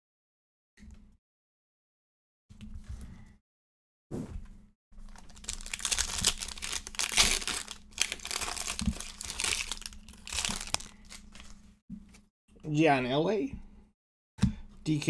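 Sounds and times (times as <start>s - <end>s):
foil wrapper tearing and crinkling: 5.0s - 11.6s.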